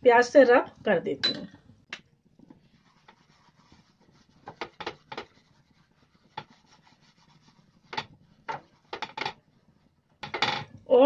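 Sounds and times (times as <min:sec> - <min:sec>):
onion rubbing on pan: 0:02.2 - 0:10.2.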